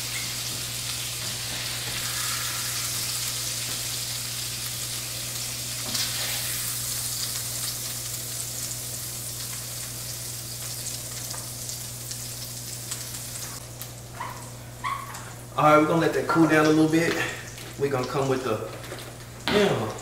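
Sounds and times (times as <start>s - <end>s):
food sizzling in hot oil: 0.0s - 15.5s.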